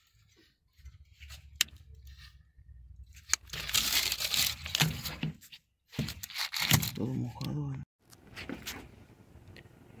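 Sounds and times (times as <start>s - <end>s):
plastic crinkling and rustling: 3.2s - 5.4s, 6.0s - 7.2s.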